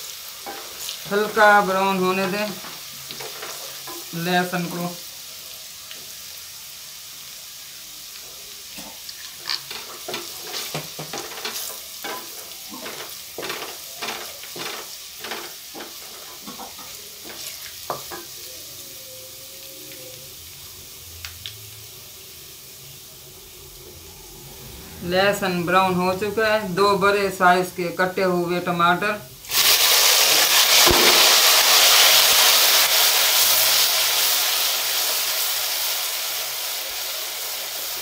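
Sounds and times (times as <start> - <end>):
garlic sizzling in a pot: 0.0 - 38.0
wooden spatula scraping: 8.8 - 17.6.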